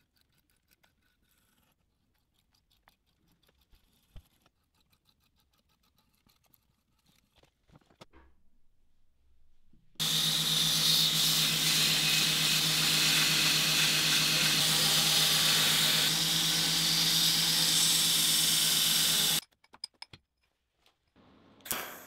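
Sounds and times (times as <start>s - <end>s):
belt grinder motor hum: 10.0s - 19.4s
steel grinding hiss: 10.0s - 19.4s.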